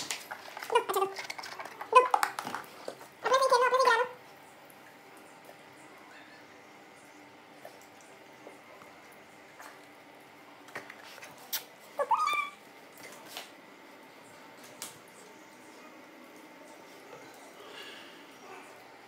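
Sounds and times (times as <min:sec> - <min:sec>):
dog whining: 0:12.0 - 0:12.6.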